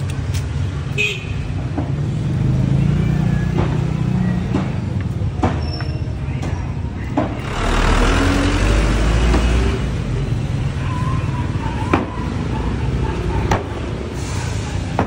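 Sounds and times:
roadside traffic: 0:00.0 - 0:15.0
vehicle rumbling past: 0:07.3 - 0:11.6.

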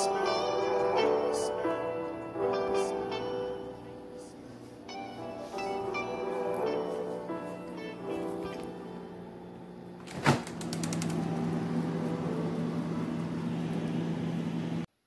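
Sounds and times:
steady low hum: 0:00.0 - 0:15.0
freezer drawer rattling open: 0:10.0 - 0:11.3.

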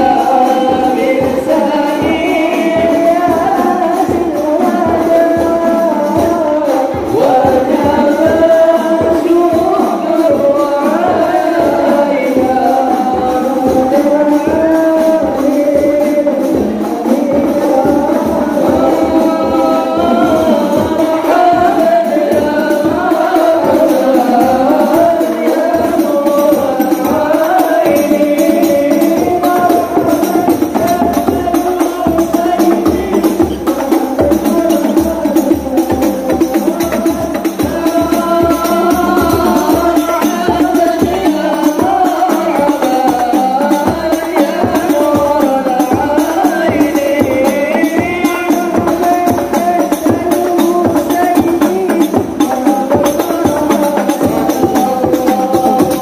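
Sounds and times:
frame drums beaten: 0:00.0 - 0:56.0
men singing in unison: 0:00.0 - 0:56.0.

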